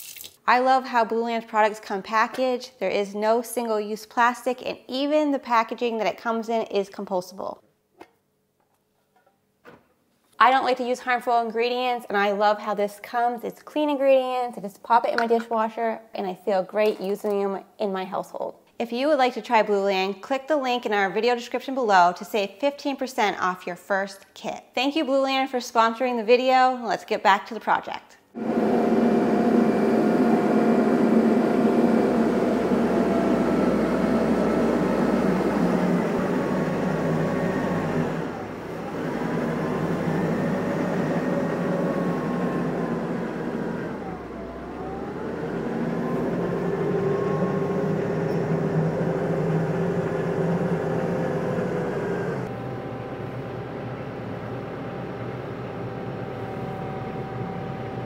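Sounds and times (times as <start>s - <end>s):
engine running: 28.4s - 58.0s.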